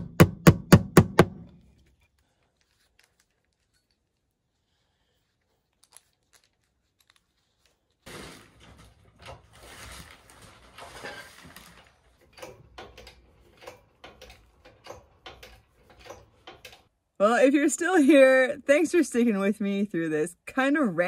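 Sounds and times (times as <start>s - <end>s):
rustling and clinking: 1.7s - 4.4s, 8.1s - 16.9s
chain and hoist clicking and knocking: 12.2s - 16.9s.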